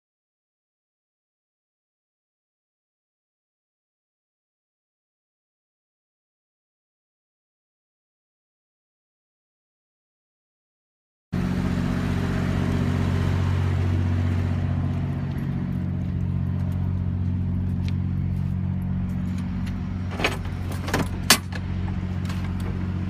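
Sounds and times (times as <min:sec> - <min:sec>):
car engine idling: 0:11.4 - 0:23.0.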